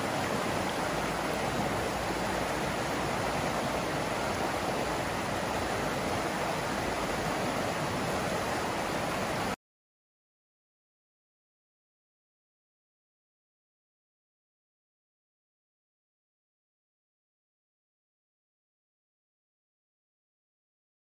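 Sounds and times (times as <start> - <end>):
stream rushing over rocks: 0.0 - 9.6.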